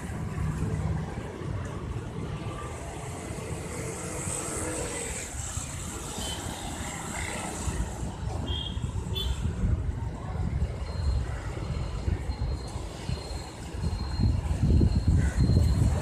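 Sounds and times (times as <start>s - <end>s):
traffic rumble: 0.0s - 16.0s.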